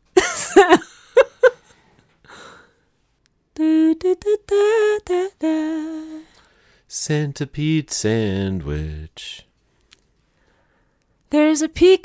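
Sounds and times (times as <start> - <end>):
woman singing: 3.6 - 6.4, 11.3 - 12.0.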